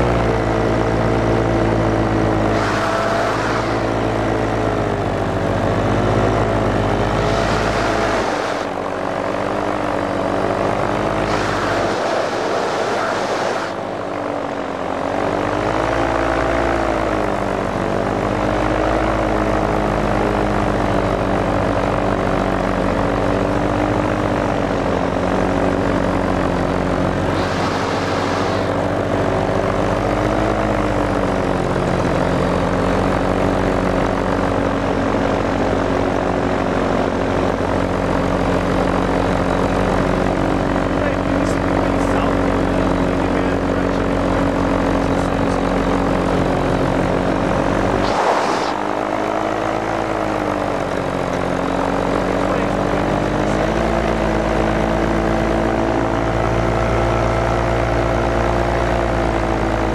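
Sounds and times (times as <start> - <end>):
propeller aircraft engine: 0.0 - 59.9
wind rushing: 48.0 - 49.0.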